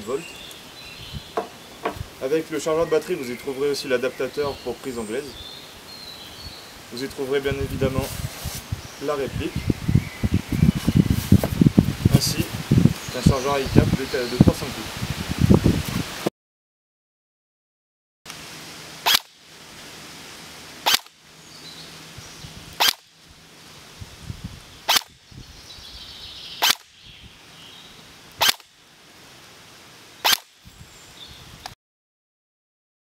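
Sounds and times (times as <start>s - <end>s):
airsoft rifle shots: 20.8s - 21.1s.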